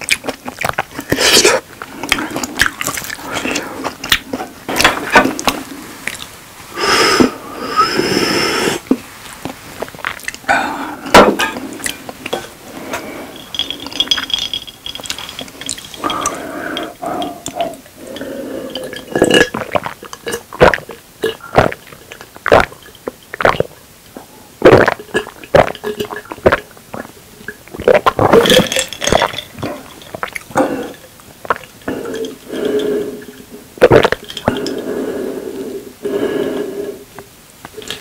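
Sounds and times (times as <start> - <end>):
loud swallowing gulps: 9.8 - 34.8
glass and dishes clinking: 12.3 - 16.9.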